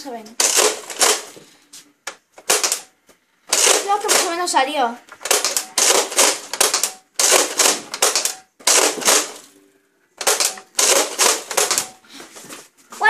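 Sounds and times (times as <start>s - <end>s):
toy blaster firing discs: 0.4s - 1.4s, 2.4s - 2.9s, 3.5s - 4.4s, 5.2s - 9.4s, 10.2s - 11.9s.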